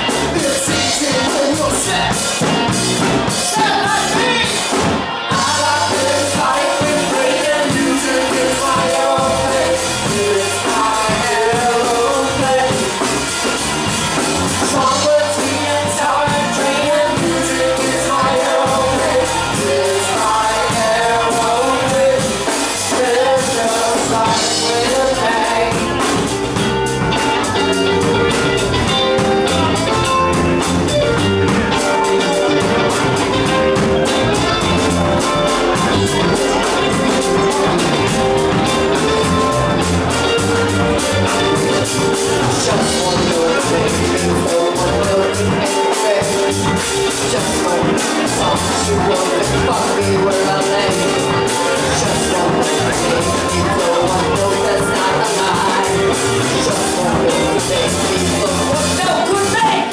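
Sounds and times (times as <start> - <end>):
person singing: 0.0 - 59.9
rock band playing: 0.0 - 59.9.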